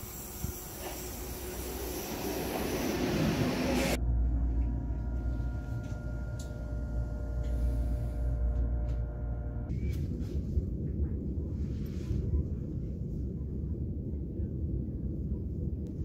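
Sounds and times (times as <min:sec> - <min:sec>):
train pulling into station: 0:00.0 - 0:09.7
train running rumble: 0:00.0 - 0:13.3
faint steady hum: 0:03.9 - 0:09.9.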